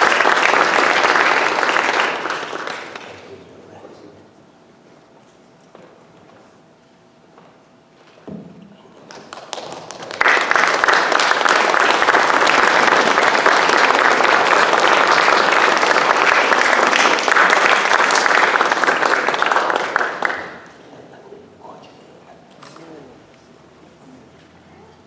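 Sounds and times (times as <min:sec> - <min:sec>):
audience applauding: 0:00.0 - 0:03.4, 0:09.0 - 0:20.8.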